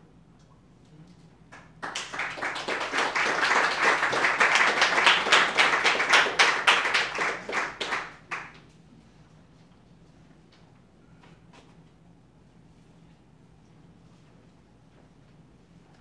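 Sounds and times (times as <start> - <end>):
audience applauding: 1.6 - 8.6.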